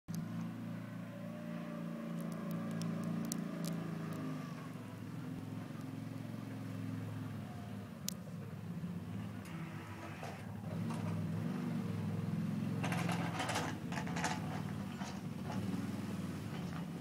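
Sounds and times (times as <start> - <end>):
side-by-side engine running: 0.1 - 17.0
snow plow blade scraping snow: 0.2 - 17.0
sharp clicks: 2.2 - 4.3.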